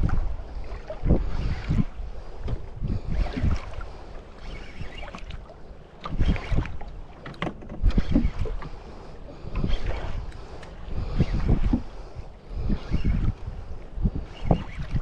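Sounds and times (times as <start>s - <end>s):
water slapping boat hull: 0.0s - 15.0s
wind on microphone: 0.0s - 15.0s.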